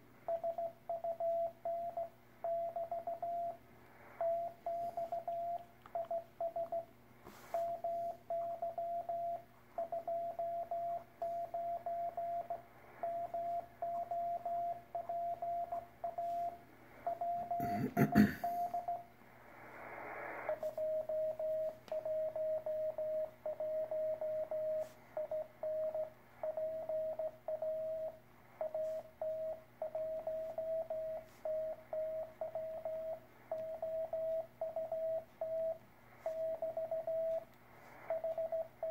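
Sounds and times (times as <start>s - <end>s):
morse code tone: 0.3s - 3.6s, 4.2s - 19.1s, 20.4s - 38.9s
radio crackle and hiss: 19.2s - 27.2s, 32.8s - 38.8s.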